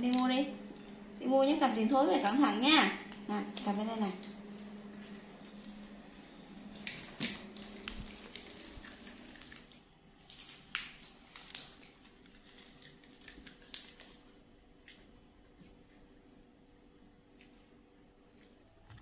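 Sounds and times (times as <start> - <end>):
footsteps on tiled floor: 4.4 - 9.7.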